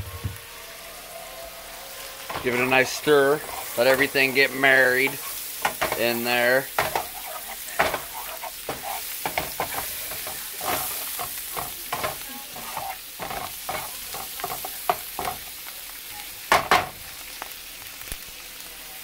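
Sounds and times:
mushrooms sizzling in butter: 0.0s - 19.0s
spatula clatter: 2.2s - 15.5s, 16.5s - 17.0s
spatula scraping and knocking pan: 2.2s - 15.5s, 16.5s - 17.0s.

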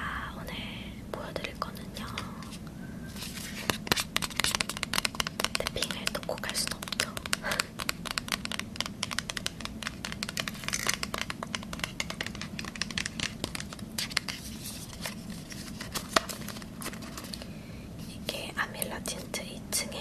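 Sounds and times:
fingers tapping paperboard box: 3.7s - 14.4s.

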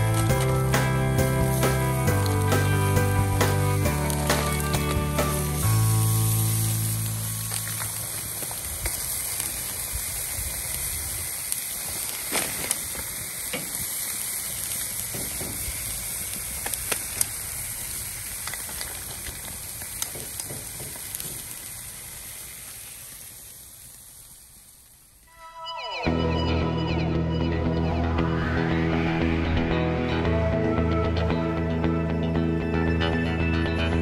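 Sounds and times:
meat sizzling on a grill: 0.0s - 25.2s.

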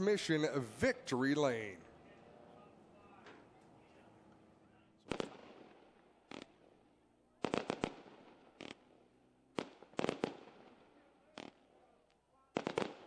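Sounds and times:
fireworks bangs: 4.7s - 13.0s.

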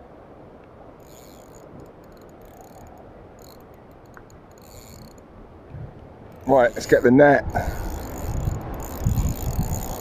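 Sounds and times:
fishing reel whirring and clicking: 1.0s - 5.3s, 6.3s - 10.0s.

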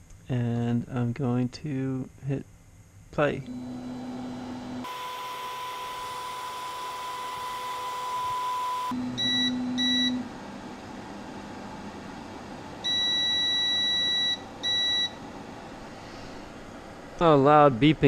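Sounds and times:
stepper motor whine: 3.5s - 10.3s
printer beeps: 4.9s - 10.2s, 12.8s - 15.2s.

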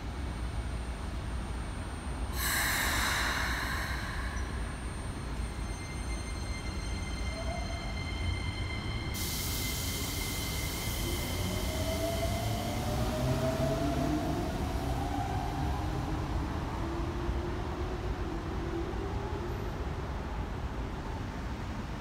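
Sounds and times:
train rumble: 0.0s - 22.0s
hiss: 2.3s - 5.2s, 9.2s - 13.0s.

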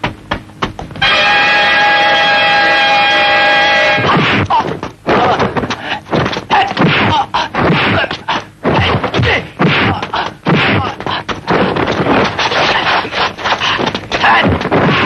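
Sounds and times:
fighters shouting: 3.8s - 5.6s, 12.7s - 15.0s
punch and kick impacts: 4.1s - 12.8s, 14.1s - 15.0s.

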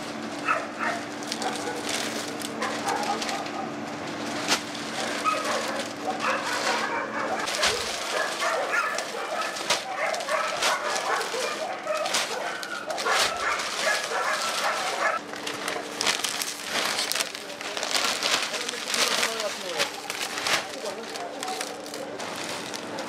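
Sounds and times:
plastic sacks rustling and knocking: 0.0s - 3.5s, 4.1s - 23.0s
dogs barking and whining: 0.4s - 3.9s, 5.0s - 15.3s.

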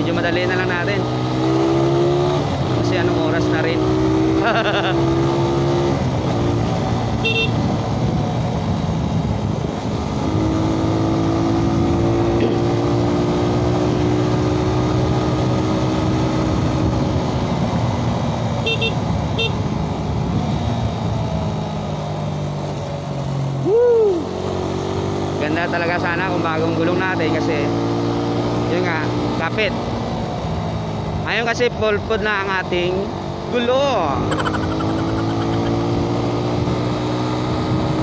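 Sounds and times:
motorcycle engine running: 0.0s - 23.0s, 34.1s - 38.0s
road noise: 0.0s - 38.0s
horn beeps: 7.2s - 7.6s, 18.6s - 19.6s, 34.3s - 35.8s.

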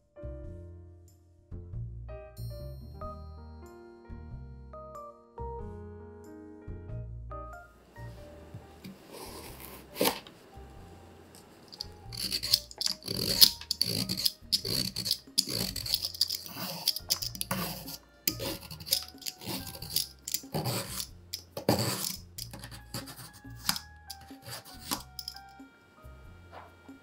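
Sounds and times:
soft background music: 0.0s - 27.0s
peeler scraping a carrot: 9.1s - 10.3s, 11.7s - 25.4s.

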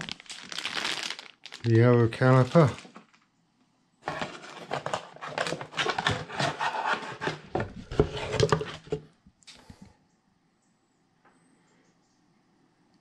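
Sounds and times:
hands rummaging in cardboard box: 4.0s - 9.0s
parts scraping against cardboard: 4.0s - 9.1s.

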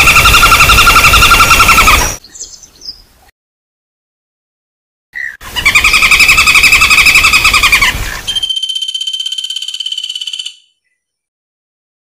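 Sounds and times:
woodpeckers rattling calls: 0.0s - 2.2s, 5.2s - 10.6s
bird trill: 0.0s - 3.0s, 5.2s - 11.3s.

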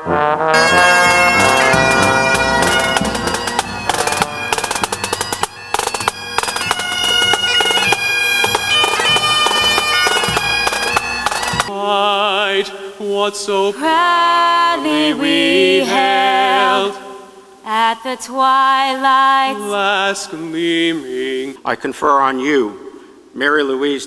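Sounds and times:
drums beating: 0.5s - 11.7s
bagpipes playing melody over drone: 0.6s - 11.7s.

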